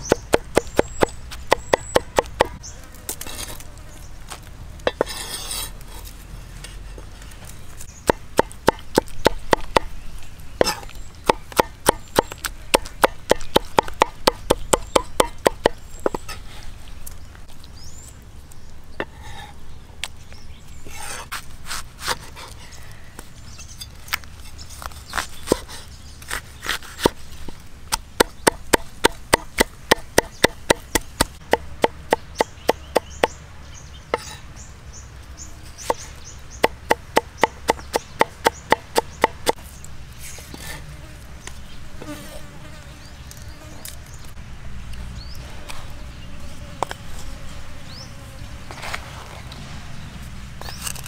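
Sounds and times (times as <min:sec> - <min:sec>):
cleaver chopping on wooden board: 0:00.0 - 0:02.6, 0:08.0 - 0:09.9, 0:10.6 - 0:16.2, 0:27.9 - 0:33.4, 0:36.6 - 0:39.6.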